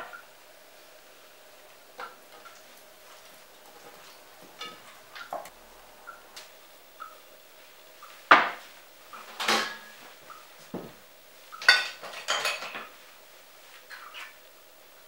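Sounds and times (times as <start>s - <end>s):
dishes knocking on counter: 8.3s - 8.6s.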